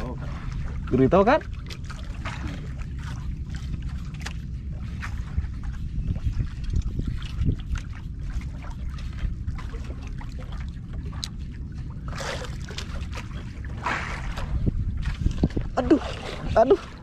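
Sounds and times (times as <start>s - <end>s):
water lapping against boat hull: 0.0s - 17.0s
wind noise on microphone: 2.3s - 10.4s, 11.0s - 17.0s
rush of water: 15.3s - 17.0s.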